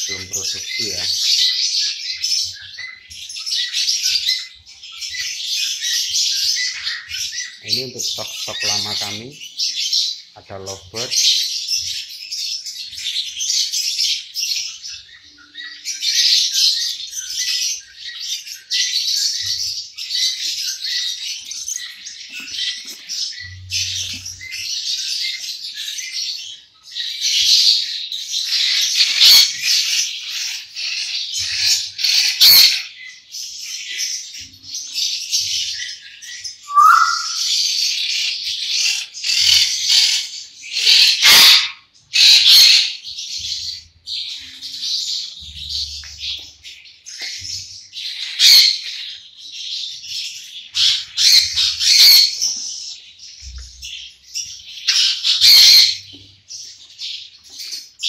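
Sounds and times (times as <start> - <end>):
lovebirds chirping: 0.0 - 58.0
low bird squawk: 36.7 - 37.5.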